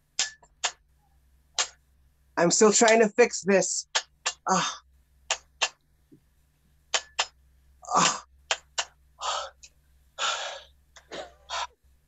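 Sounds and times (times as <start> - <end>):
person making hissing mouth sounds: 0.1 - 0.8, 1.6 - 1.8, 3.8 - 5.8, 6.9 - 11.8.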